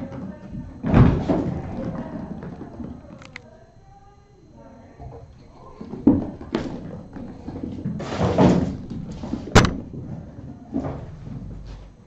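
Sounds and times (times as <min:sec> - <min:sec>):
rustling and scuffling: 0:05.4 - 0:12.0
knocks and thuds: 0:05.9 - 0:11.7.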